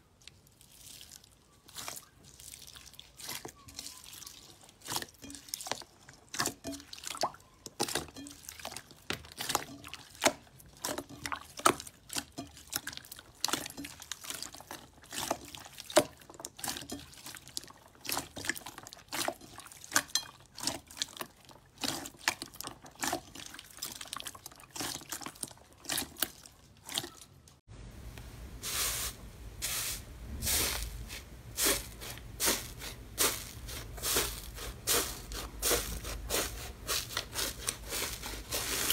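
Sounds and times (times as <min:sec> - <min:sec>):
slime squishing with wet clicks: 0:00.0 - 0:27.6
low hum: 0:27.7 - 0:28.6.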